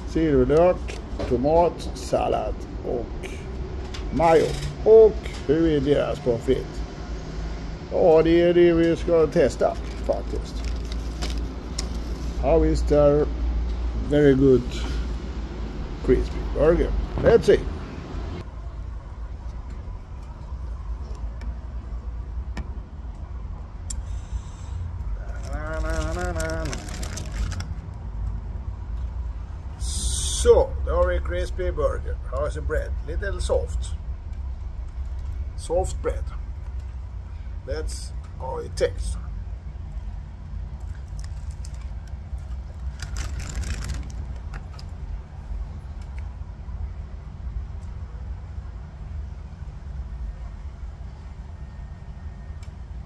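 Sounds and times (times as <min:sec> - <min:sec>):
low outdoor rumble: 0:00.0 - 0:53.0
paper wrapping clicks: 0:25.3 - 0:27.8, 0:40.8 - 0:45.0.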